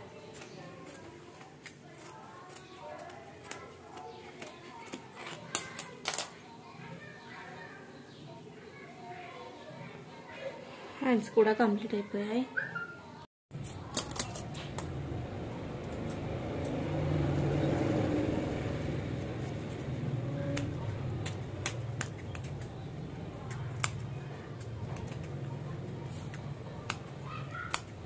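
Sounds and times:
low background hum: 0:13.6 - 0:28.0
scissor blades clicking: 0:23.4 - 0:25.3.

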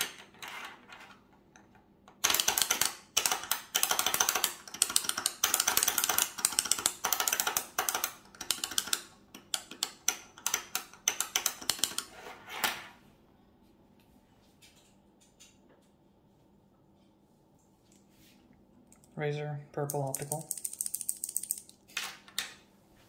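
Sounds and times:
keyboard switches clacking: 0:02.2 - 0:12.1.

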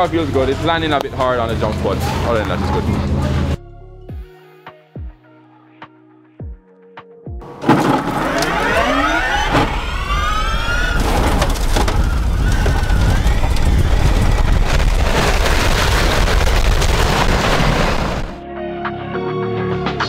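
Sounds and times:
cars rushing at speed: 0:01.1 - 0:03.6, 0:07.4 - 0:15.4
electric race car motors whining: 0:07.4 - 0:15.0.

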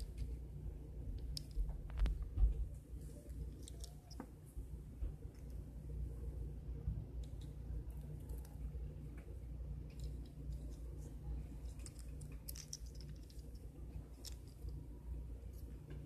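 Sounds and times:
steady low hum: 0:00.0 - 0:16.0
rat gnawing dry pasta: 0:02.9 - 0:04.4, 0:07.0 - 0:16.0.

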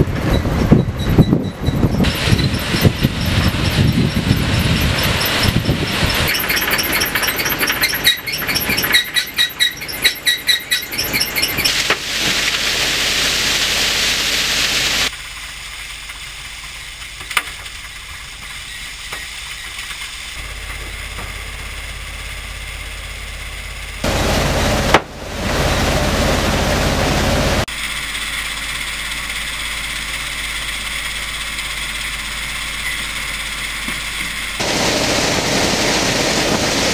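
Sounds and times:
conveyor squeaks and clinks: 0:00.0 - 0:11.9, 0:17.8 - 0:24.8, 0:27.9 - 0:34.6
machine hum: 0:00.0 - 0:36.9
gravel pouring: 0:02.0 - 0:22.6.

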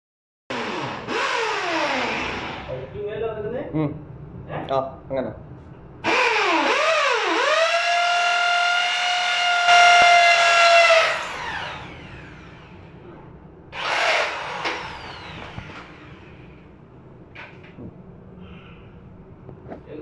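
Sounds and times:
electric drill boring into tile: 0:00.5 - 0:02.7, 0:06.0 - 0:12.8, 0:13.8 - 0:16.6.

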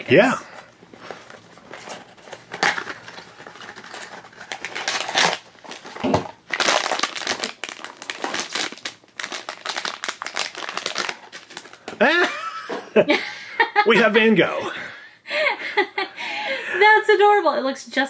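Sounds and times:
foil bag crinkling: 0:00.8 - 0:12.2.

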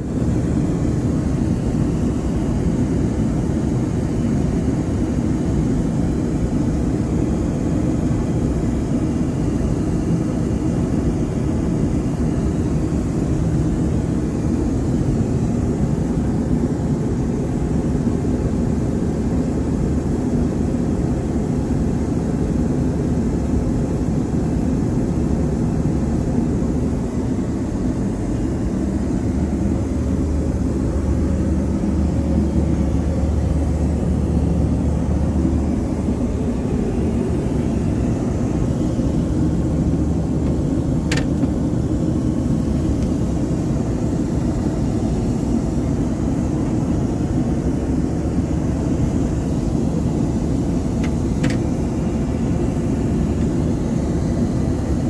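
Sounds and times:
low rumble of aircraft noise: 0:00.0 - 0:55.0.

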